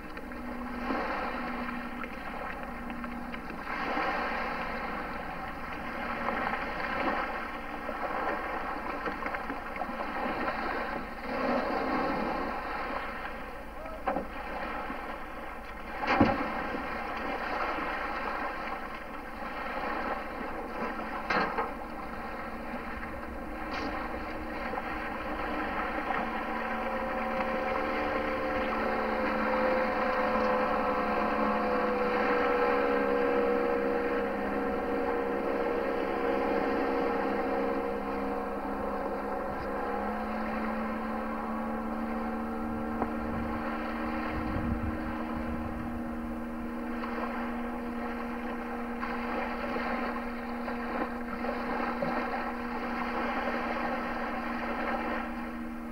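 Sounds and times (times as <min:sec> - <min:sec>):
motorboat engine running: 0:00.0 - 0:55.9.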